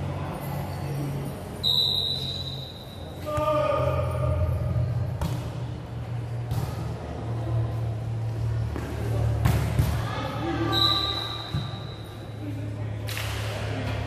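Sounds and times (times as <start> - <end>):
referee's whistle: 1.6 - 3.0, 10.7 - 12.1.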